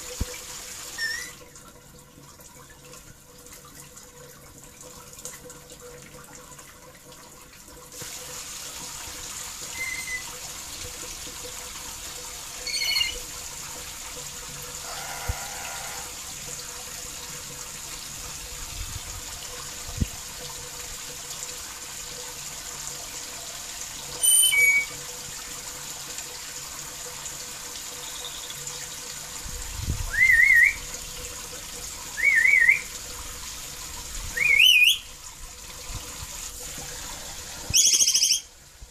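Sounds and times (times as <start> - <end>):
water hissing: 0.0 - 1.4, 8.0 - 10.8, 12.4 - 13.4, 14.7 - 16.4, 35.8 - 38.6
parrot shrill whistling calls: 1.0 - 1.4, 9.7 - 10.3, 12.6 - 13.2, 24.2 - 25.0, 30.1 - 30.8, 32.2 - 32.9, 34.3 - 35.1, 37.7 - 38.5.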